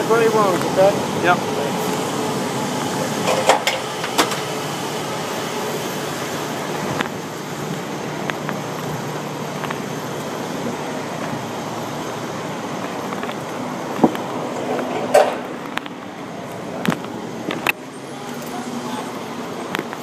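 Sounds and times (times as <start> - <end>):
truck engine running: 0.0 - 20.0.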